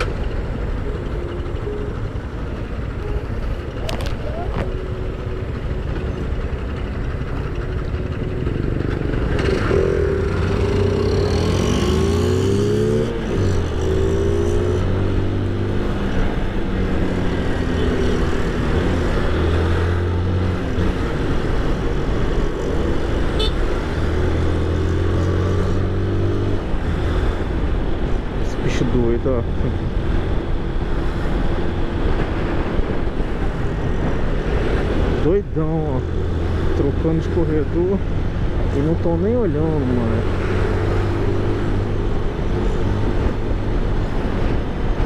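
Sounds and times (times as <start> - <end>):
motorcycle engine accelerating: 0.0 - 27.9.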